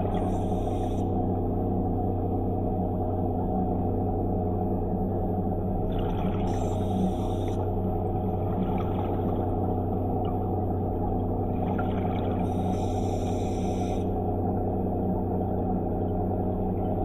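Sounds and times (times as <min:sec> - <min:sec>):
underwater scooter humming: 0:00.0 - 0:01.1, 0:06.0 - 0:07.6, 0:11.4 - 0:14.2.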